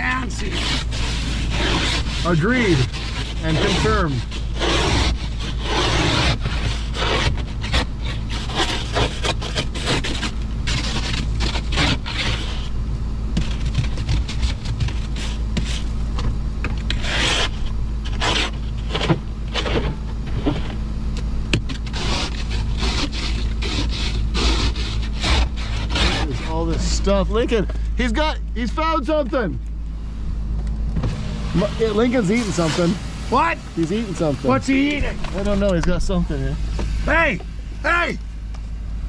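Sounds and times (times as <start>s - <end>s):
ice scraper scraping windshield: 0.0s - 20.8s, 21.5s - 29.6s, 31.0s - 38.2s
steady low hum: 0.0s - 39.0s.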